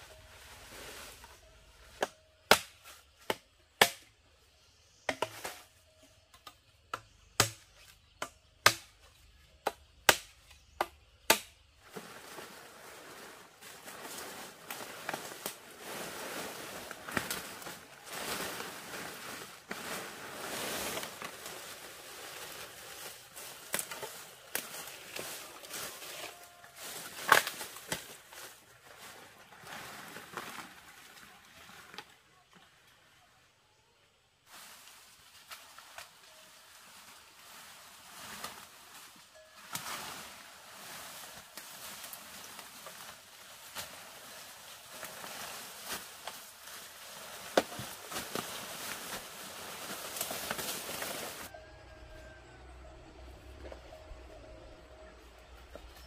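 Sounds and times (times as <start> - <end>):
steady rustling noise: 11.7 - 30.9, 34.5 - 51.6.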